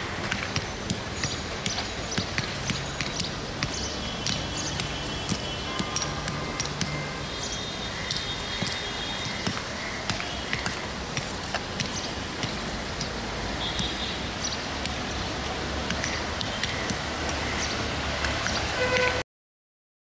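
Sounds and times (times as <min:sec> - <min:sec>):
scattered clicks and knocks: 0:00.2 - 0:07.1.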